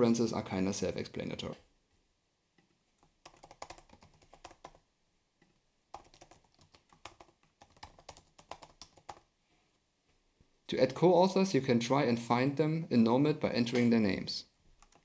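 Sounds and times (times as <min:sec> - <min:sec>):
typing on computer keyboard: 0:03.0 - 0:04.8, 0:05.9 - 0:09.3, 0:14.7 - 0:15.0.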